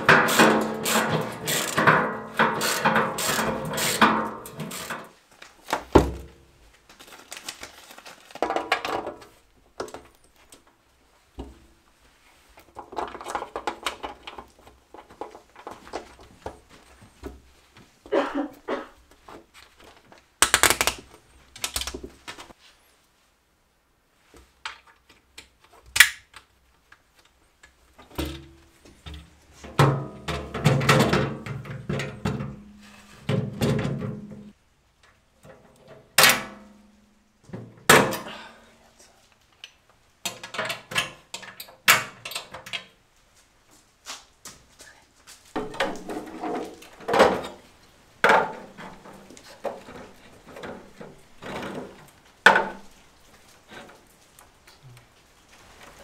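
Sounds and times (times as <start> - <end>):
metal parts knocking and rattling: 0.0 - 5.1.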